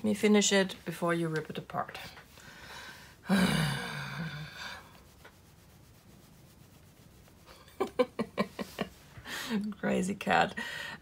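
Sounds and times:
faint rubbing of fur: 4.9s - 9.2s.

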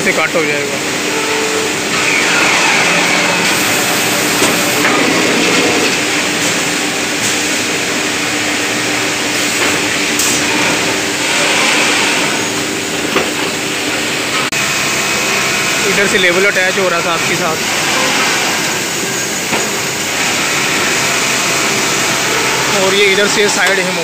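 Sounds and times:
hemming machine droning: 0.4s - 13.0s.

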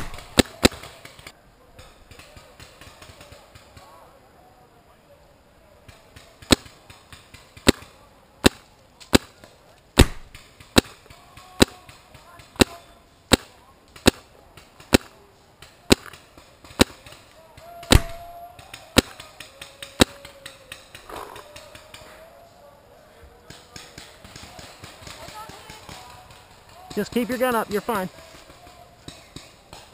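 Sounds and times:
paintball marker shots popping: 0.0s - 1.3s, 6.1s - 21.9s.

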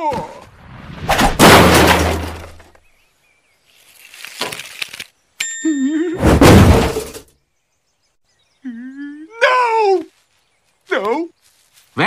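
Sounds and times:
cartoon crash: 0.8s - 2.6s, 6.2s - 7.2s
clattering: 1.4s - 2.8s.

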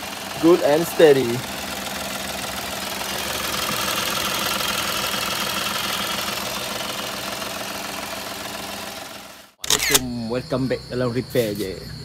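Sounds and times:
car engine idling: 0.0s - 9.6s.

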